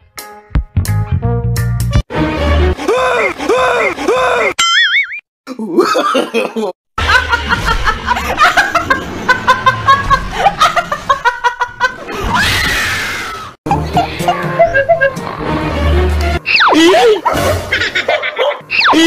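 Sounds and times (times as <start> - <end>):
woman laughing and squealing: 5.8 - 15.2, 16.4 - 19.0.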